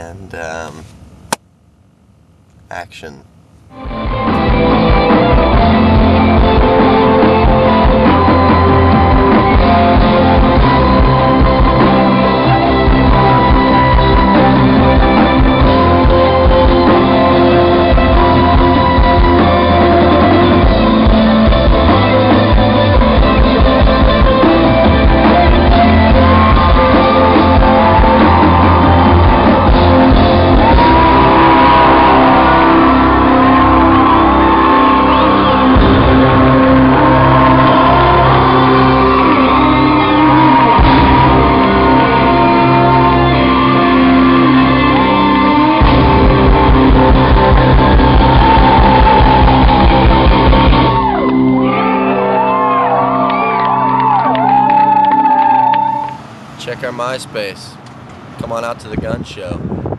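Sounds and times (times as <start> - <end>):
rock band playing loud: 3.8 - 56.1
person singing: 34.4 - 50.2.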